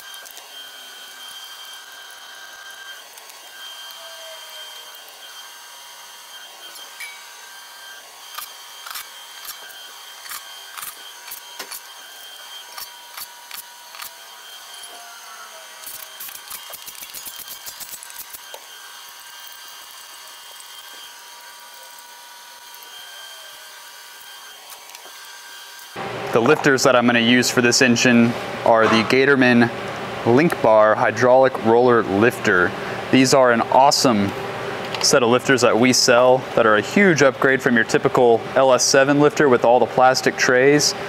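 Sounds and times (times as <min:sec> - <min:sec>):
ratchet clicking fast: 0:08.3 - 0:11.9, 0:12.7 - 0:14.1, 0:15.8 - 0:18.6.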